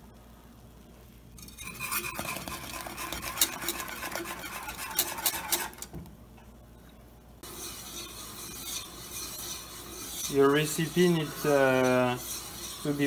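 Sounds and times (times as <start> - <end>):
wire whisk scraping metal saucepan: 1.4 - 5.9, 7.4 - 13.0.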